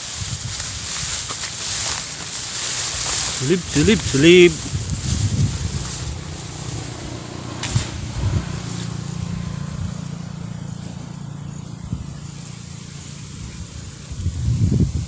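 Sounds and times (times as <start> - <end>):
engine running steadily: 0.0 - 15.0.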